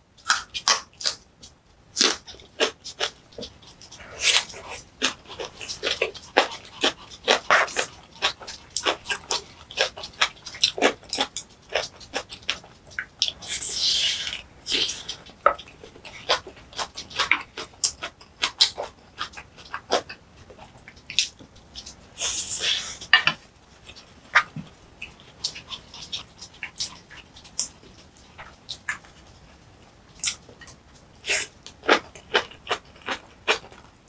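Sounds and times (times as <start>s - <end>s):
wet chewing and crunching: 0.2s - 34.0s
hiss: 22.2s - 23.0s.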